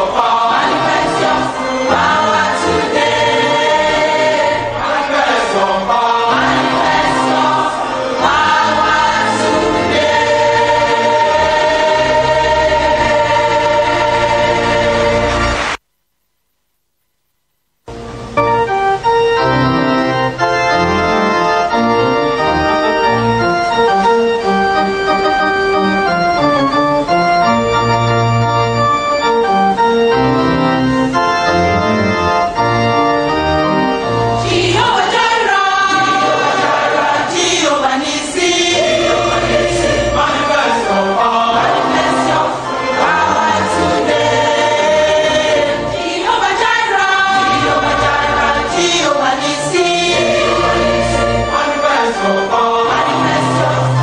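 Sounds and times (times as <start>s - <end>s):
choir singing: 0.0s - 15.8s, 34.3s - 54.0s
organ chords: 0.0s - 15.8s, 17.9s - 54.0s.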